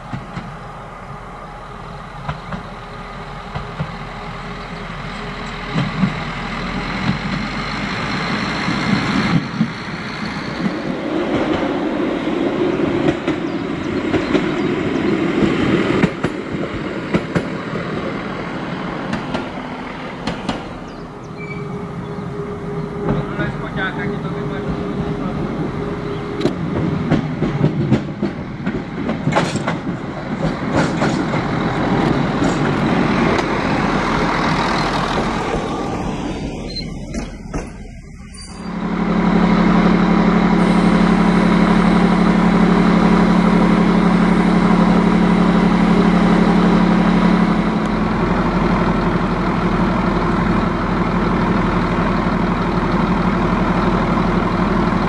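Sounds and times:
railcar rolling over points: 0.0 - 55.0
diesel engine idling: 17.8 - 27.5, 31.4 - 55.0.

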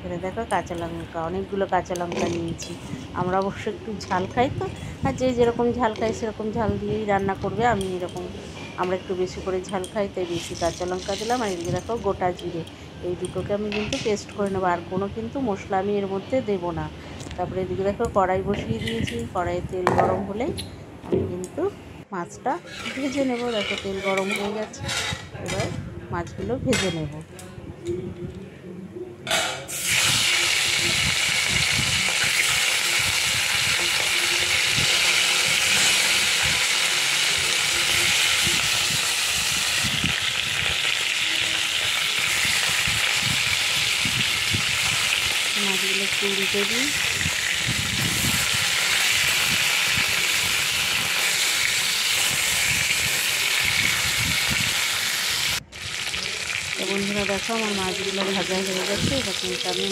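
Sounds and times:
fish frying in hot oil: 29.7 - 59.9.

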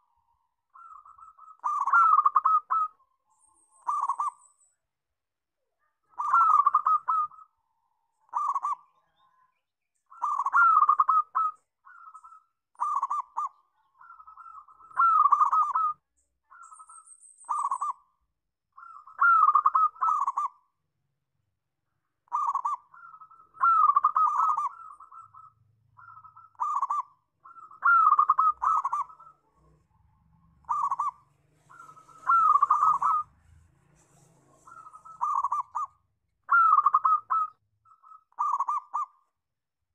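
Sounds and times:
dove cooing: 0.7 - 3.0, 3.8 - 4.4, 6.1 - 7.6, 8.3 - 9.0, 10.1 - 18.1, 18.8 - 20.6, 22.3 - 39.2.

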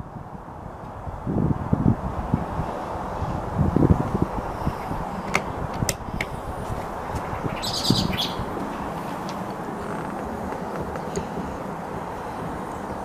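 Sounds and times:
outdoor background noise: 0.0 - 13.0
bird chirping: 7.1 - 8.6.

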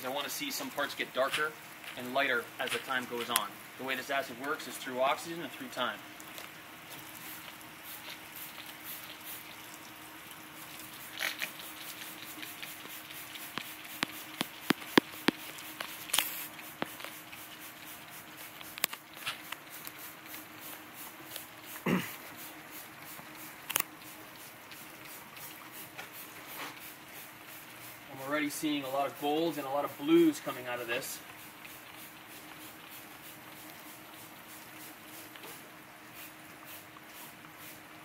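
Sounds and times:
short sprays: 10.9 - 24.2.

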